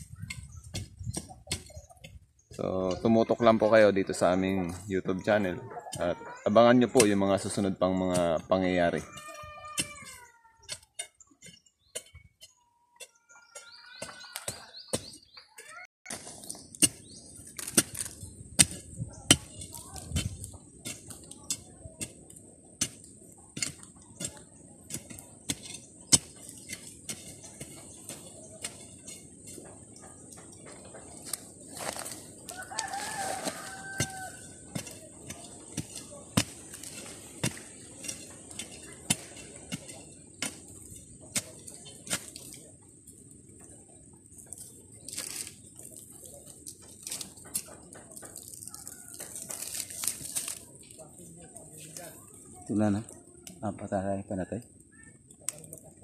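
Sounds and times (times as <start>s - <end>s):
pointed tool striking stony soil: 0.0s - 2.2s, 9.0s - 15.3s, 16.1s - 43.7s, 44.4s - 51.0s
rustling scrape: 31.0s - 42.6s, 44.5s - 52.3s.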